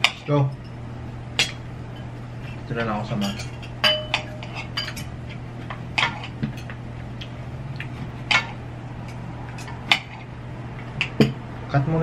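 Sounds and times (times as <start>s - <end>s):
steady low hum: 0.0s - 12.0s
cutlery clinking on plates: 3.2s - 5.1s.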